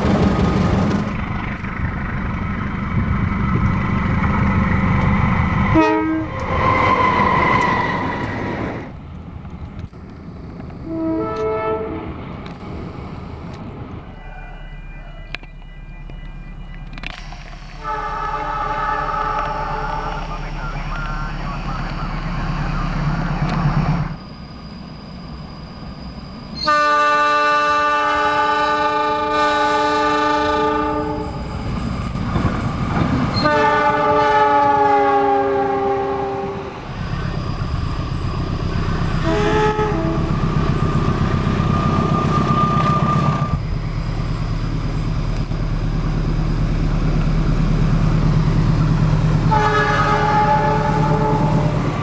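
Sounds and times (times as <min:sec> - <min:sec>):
low rumble of trains: 0:00.0 - 0:52.0
locomotive horn blasts: 0:05.7 - 0:06.5, 0:10.8 - 0:12.0, 0:17.8 - 0:20.3, 0:26.6 - 0:31.4, 0:33.4 - 0:36.6, 0:39.2 - 0:40.4, 0:49.5 - 0:51.7.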